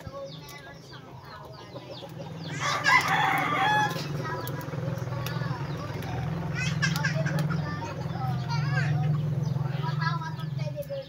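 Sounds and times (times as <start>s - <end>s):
chickens clucking: 0.0s - 11.0s
rooster crowing: 2.5s - 4.1s.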